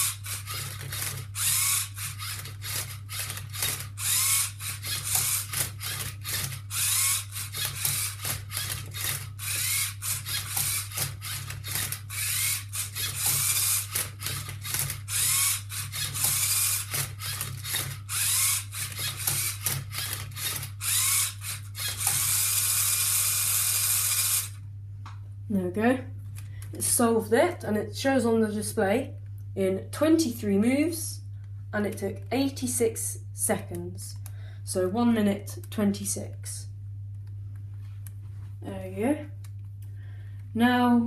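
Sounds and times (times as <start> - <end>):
plastic gears clicking: 0.0 - 24.5
robot motors whirring: 0.0 - 24.6
steady low hum: 0.0 - 41.0.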